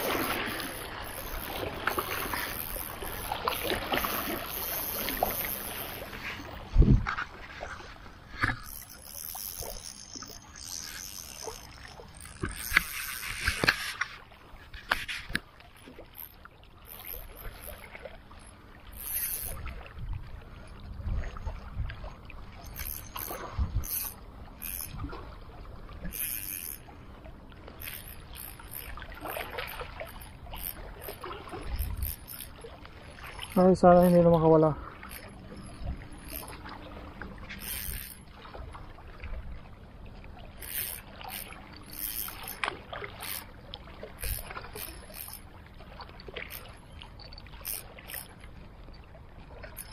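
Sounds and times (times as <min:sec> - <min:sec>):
splashing and scraping: 0:00.0 - 0:20.0.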